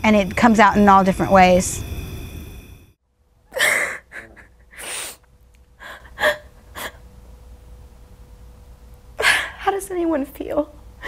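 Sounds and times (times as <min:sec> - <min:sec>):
woman crying: 0:03.5 - 0:05.2, 0:05.8 - 0:07.1.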